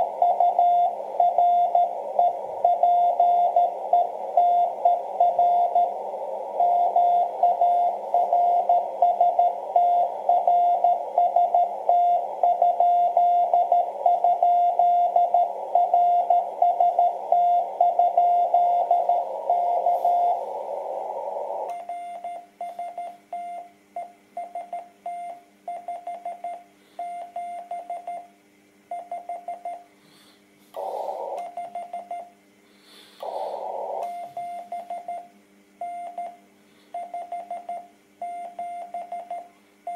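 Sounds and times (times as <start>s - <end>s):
morse code beeping: 0.0s - 6.0s, 6.6s - 23.6s
receiver hiss: 0.0s - 28.4s, 29.1s - 35.4s.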